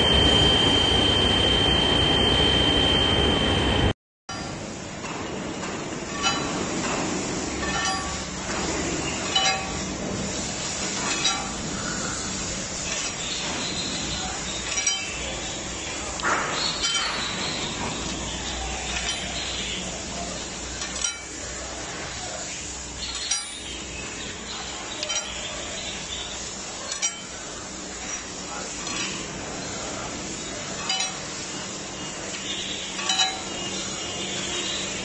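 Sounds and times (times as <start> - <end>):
steady background hum: 0.0 - 35.0
steel balls clinking on metal: 7.6 - 8.3, 9.2 - 9.8, 11.0 - 11.6, 14.0 - 15.5, 18.4 - 19.8, 20.7 - 21.4, 23.0 - 23.7, 25.0 - 25.6, 26.8 - 27.4, 30.8 - 31.4, 32.3 - 33.8.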